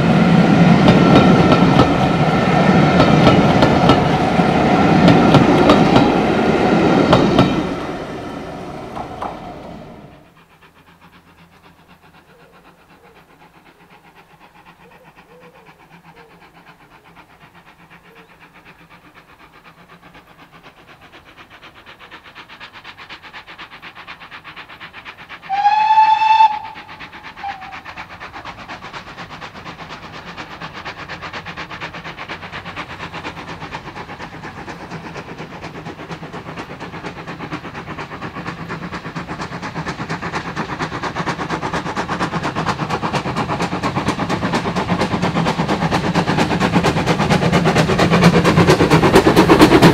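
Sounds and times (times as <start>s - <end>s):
train working and wheel noise: 0.0s - 49.9s
steam locomotive whistle: 25.5s - 27.8s.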